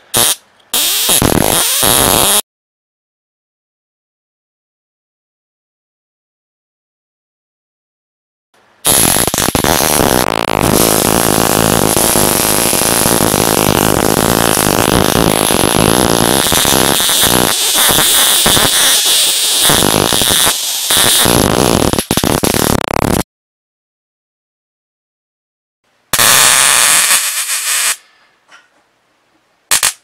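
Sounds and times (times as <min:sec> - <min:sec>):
electrical arc buzzing crackle: 0:00.1 - 0:02.4, 0:08.8 - 0:23.2, 0:26.2 - 0:28.0, 0:29.7 - 0:30.0.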